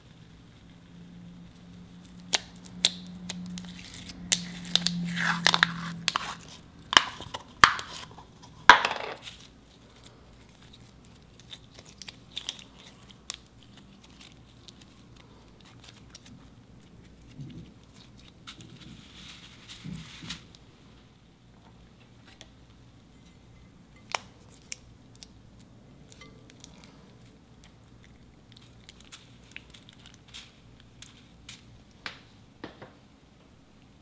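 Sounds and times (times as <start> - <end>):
slime crackling and popping: 1.4 - 8.2, 9.2 - 18.8.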